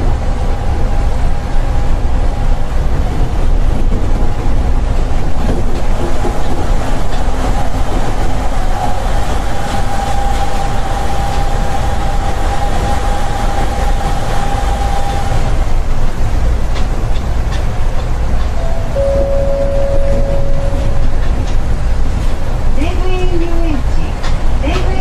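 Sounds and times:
train low rumble: 0:00.0 - 0:25.0
high whine: 0:18.6 - 0:21.8.

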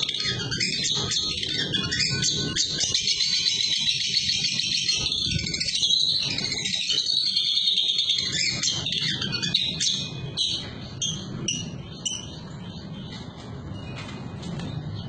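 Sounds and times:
songbird chirping and trilling: 0:00.0 - 0:15.0.

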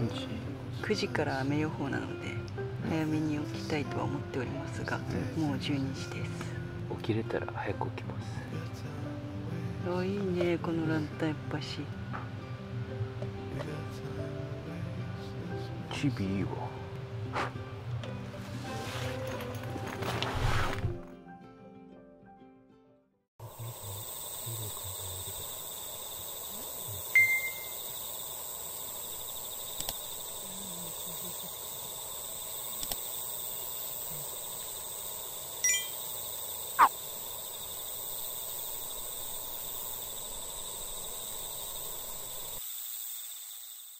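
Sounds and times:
crickets and insects trilling: 0:23.4 - 0:43.9
short ringing tone: 0:27.1 - 0:27.8, 0:35.6 - 0:36.0
faint clicks: 0:29.7 - 0:30.1.

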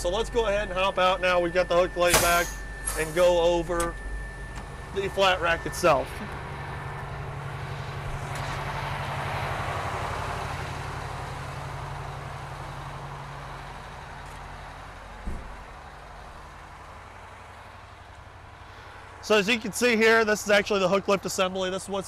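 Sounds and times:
diesel truck engine idling: 0:00.0 - 0:22.0
thump: 0:15.2 - 0:15.6.

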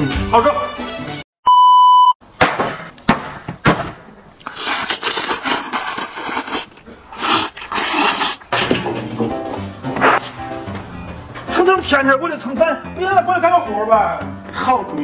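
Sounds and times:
high test tone beep: 0:01.4 - 0:02.2
biting and chewing: 0:04.4 - 0:09.4
slurping: 0:04.4 - 0:09.4.

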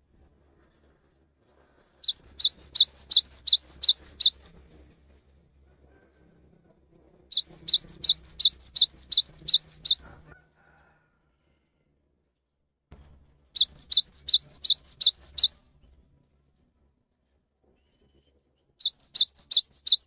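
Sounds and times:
bird singing rising whistles: 0:02.1 - 0:04.5, 0:07.4 - 0:10.0, 0:13.6 - 0:15.6, 0:18.8 - 0:20.0.

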